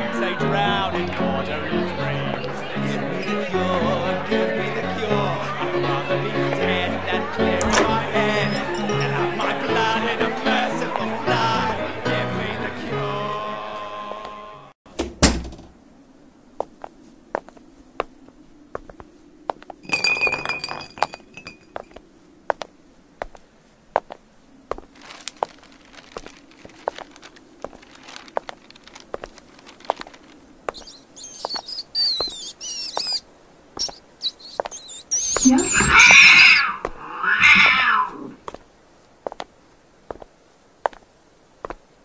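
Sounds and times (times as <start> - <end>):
glass bottle rolling over cobblestones: 19.8 - 22.0
high wavering squeaks: 30.7 - 33.2, 33.8 - 36.8.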